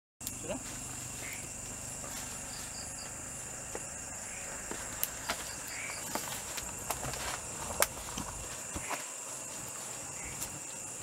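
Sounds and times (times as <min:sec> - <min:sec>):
crickets chirping: 0:00.2 - 0:11.0
footsteps crunching dry leaves: 0:00.5 - 0:10.9
twigs snapping: 0:03.0 - 0:10.6.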